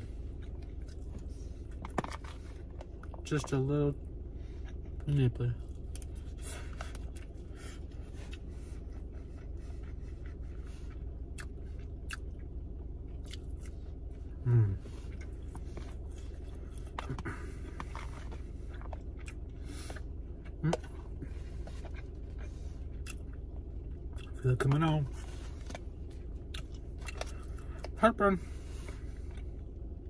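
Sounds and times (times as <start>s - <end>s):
person chewing: 0.0s - 3.2s, 4.5s - 30.0s
steady low hum: 0.0s - 30.0s
short low vocal sound: 14.4s - 15.0s.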